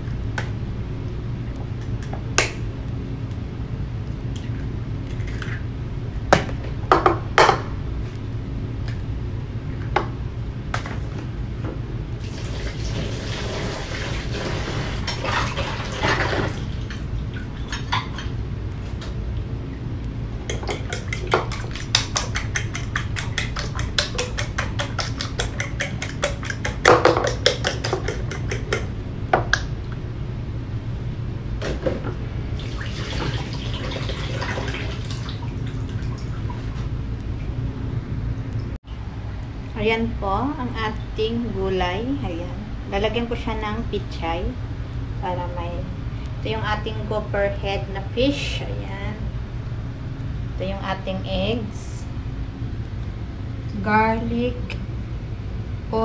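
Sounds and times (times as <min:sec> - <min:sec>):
steady low hum: 0:00.0 - 0:56.0
eggs cracked on bowl: 0:20.5 - 0:28.9
whisk clicking against bowl: 0:20.5 - 0:28.9.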